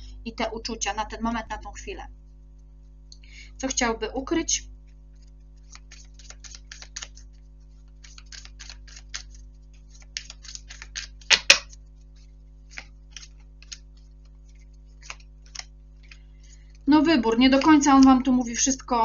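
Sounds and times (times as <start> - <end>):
cards shuffling: 4.8 - 18.2.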